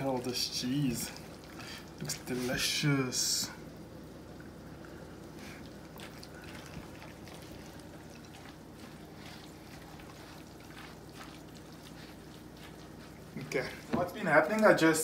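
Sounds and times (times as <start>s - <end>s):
spatula stirring mixture in glass bowl: 6.0s - 14.8s.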